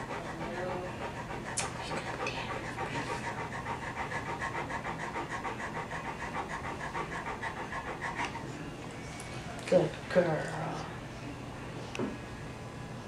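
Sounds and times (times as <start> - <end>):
dog panting: 0.0 - 8.6.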